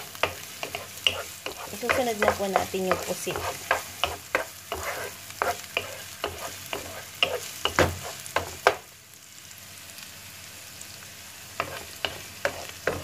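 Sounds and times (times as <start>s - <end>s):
spatula scraping and tapping pan: 0.0s - 8.8s, 11.6s - 13.0s
onion sizzling in oil: 0.0s - 13.0s.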